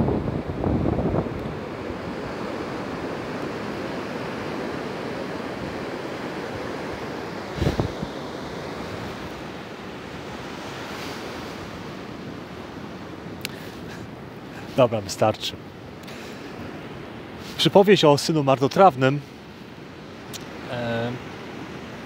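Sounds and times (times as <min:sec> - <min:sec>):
wind on microphone: 0:00.0 - 0:02.5, 0:07.5 - 0:09.4
waves breaking on beach: 0:00.0 - 0:22.0.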